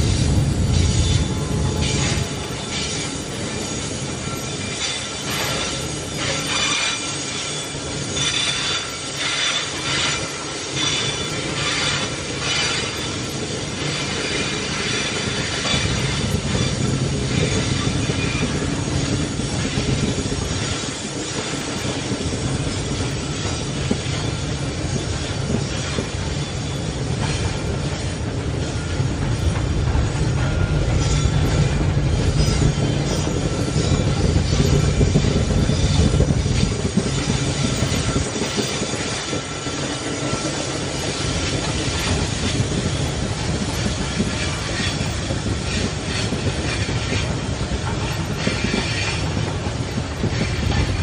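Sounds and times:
train wheels rumbling on rail: 0.0s - 51.0s
high wheel squeal: 0.1s - 51.0s.

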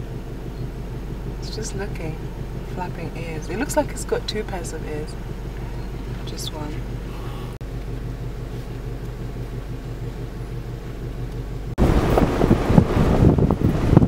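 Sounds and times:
vehicle engine idling: 0.0s - 14.0s
wind buffeting microphone: 10.7s - 14.0s.

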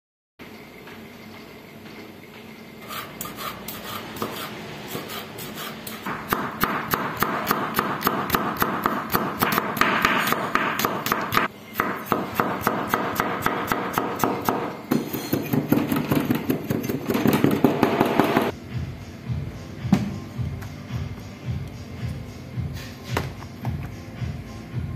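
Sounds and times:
knife chopping on wooden board: 2.9s - 18.5s.

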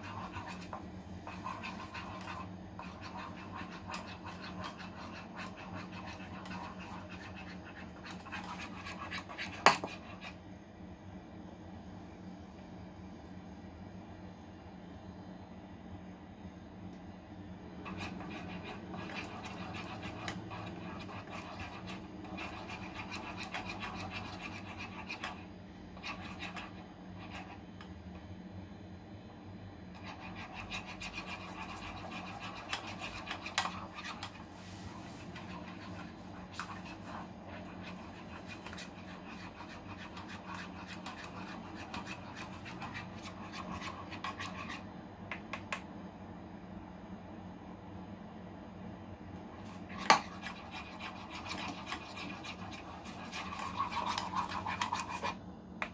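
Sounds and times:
spatula scraping metal saucepan: 49.9s - 55.4s.

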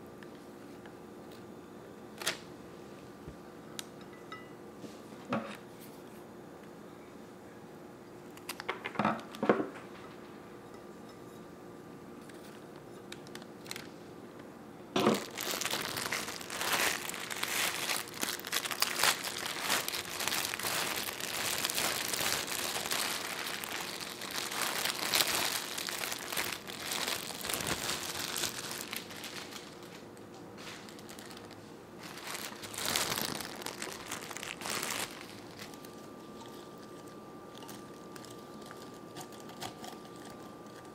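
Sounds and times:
plastic wrapping crinkling: 13.2s - 14.0s, 15.0s - 40.9s.

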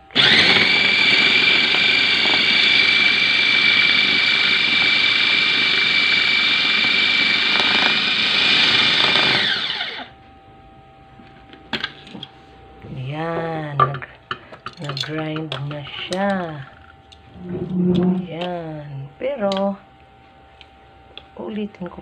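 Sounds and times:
food processor whining: 0.0s - 10.2s.

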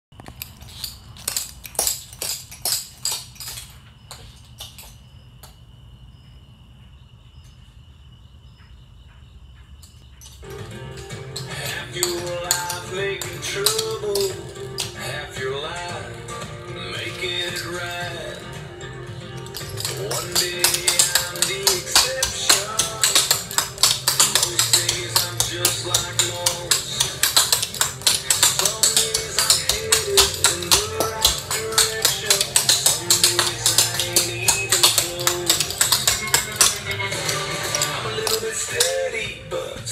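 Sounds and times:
tap shoes clicking on concrete: 0.1s - 5.6s, 10.2s - 39.4s
music: 10.4s - 39.9s
song playing: 10.4s - 39.9s.

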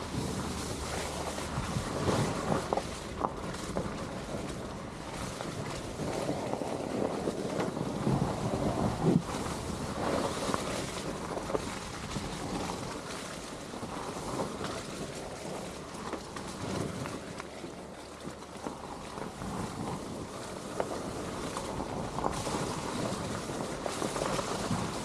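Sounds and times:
wind rumbling on microphone: 0.0s - 25.0s.

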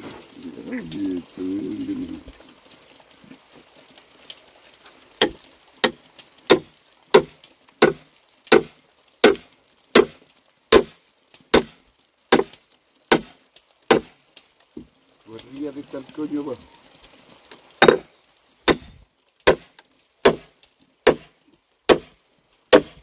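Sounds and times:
axe chopping wood: 5.2s - 14.2s, 17.8s - 18.1s, 18.7s - 20.5s, 21.1s - 21.3s, 21.9s - 23.0s.

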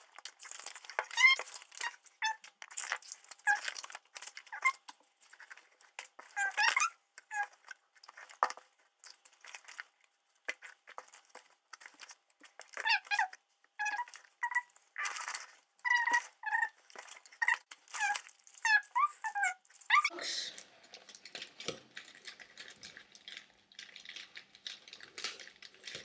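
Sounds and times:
plastic packaging crinkling: 0.0s - 26.0s
animal chirps: 17.4s - 20.1s.

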